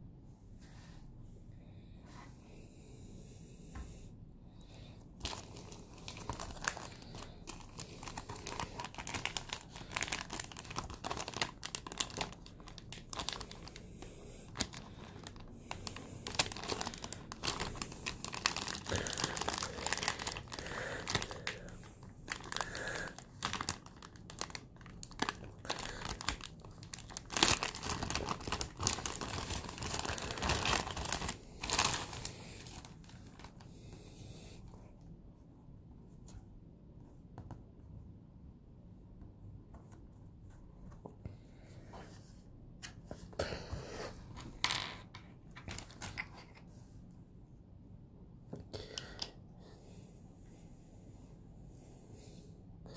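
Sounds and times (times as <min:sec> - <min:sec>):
plastic bag crinkling: 0:05.2 - 0:33.7, 0:45.6 - 0:46.6.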